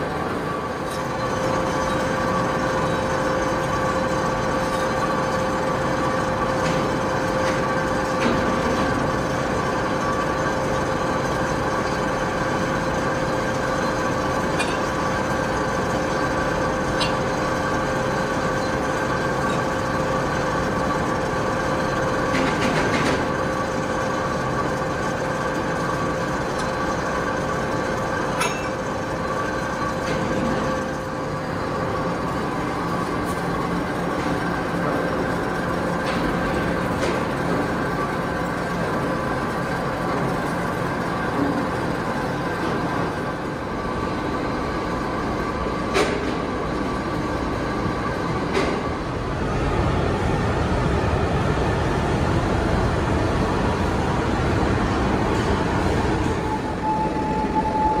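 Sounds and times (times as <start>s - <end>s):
machine tool humming and whining: 0.0s - 58.0s.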